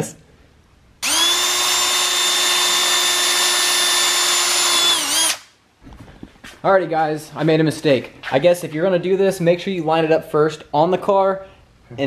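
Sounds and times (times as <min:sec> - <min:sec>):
cordless drill drilling: 0:01.0 - 0:05.5.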